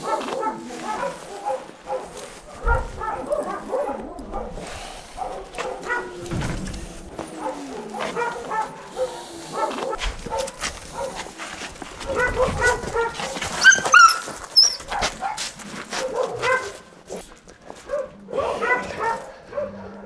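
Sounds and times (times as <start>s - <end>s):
dog yelping and whining: 5.4s - 6.4s, 12.0s - 15.1s.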